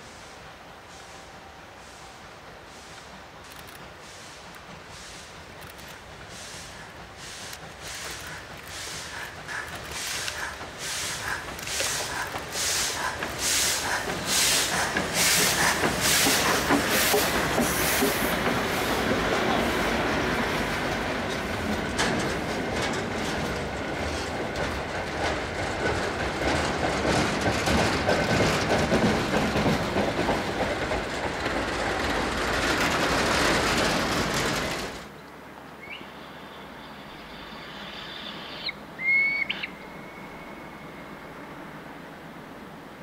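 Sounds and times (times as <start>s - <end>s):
train wheels clattering on rails: 0.0s - 35.5s.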